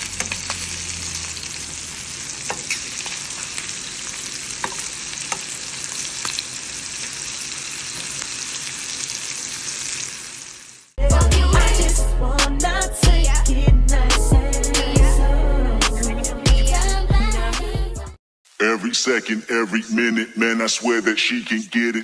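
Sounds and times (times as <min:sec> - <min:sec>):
shrimp sizzling in oil: 0:00.0 - 0:11.0
loud music: 0:11.0 - 0:18.2.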